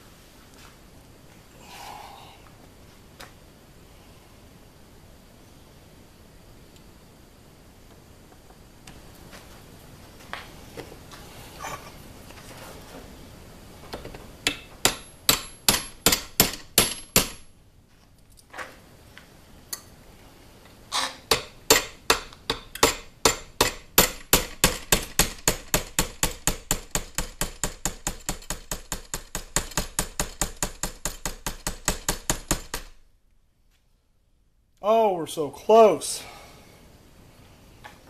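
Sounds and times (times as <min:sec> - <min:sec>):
hammer tapping metal punch: 0:14.0 - 0:17.5, 0:21.3 - 0:32.9.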